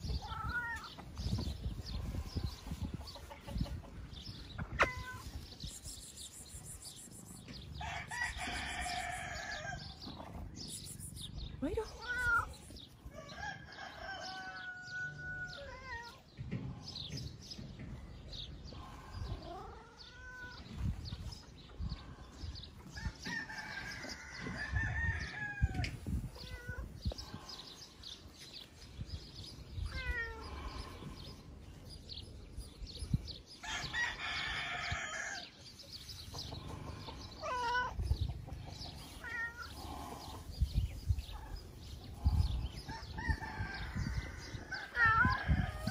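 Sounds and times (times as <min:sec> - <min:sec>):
roosters crowing: 0:00.0 - 0:11.0, 0:12.1 - 0:17.1, 0:22.8 - 0:28.2, 0:33.4 - 0:40.5, 0:41.3 - 0:45.9
cat meowing: 0:00.1 - 0:00.9
chickens clucking: 0:01.0 - 0:06.3, 0:35.7 - 0:43.6.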